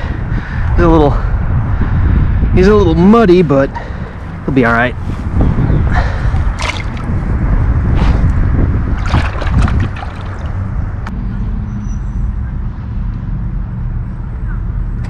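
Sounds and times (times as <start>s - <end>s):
water splashing and sloshing: 6.0s - 7.4s, 8.8s - 11.1s.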